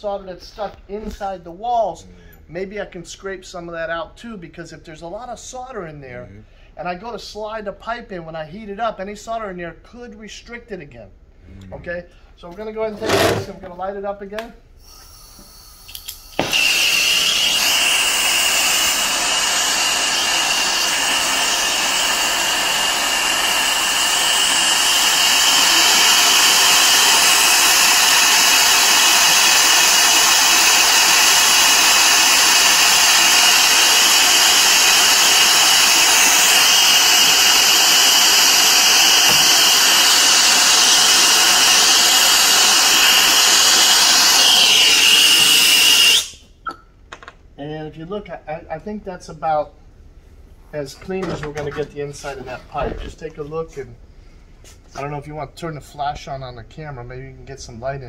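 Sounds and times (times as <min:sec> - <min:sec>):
torch flame hissing with whistle: 0:14.8 - 0:46.4.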